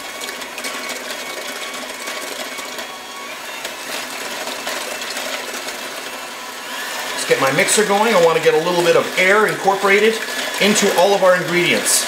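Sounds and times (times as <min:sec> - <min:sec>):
electric hand mixer whisking: 0:00.0 - 0:12.0.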